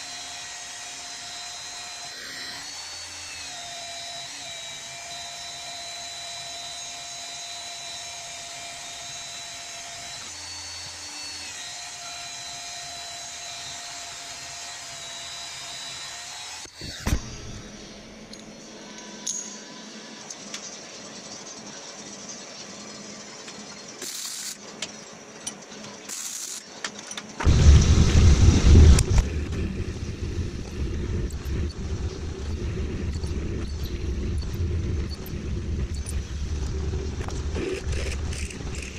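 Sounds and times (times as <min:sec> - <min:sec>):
band saw cutting steel: 0:00.0 - 0:20.3, 0:28.7 - 0:38.9
welding crackling: 0:27.4 - 0:38.9.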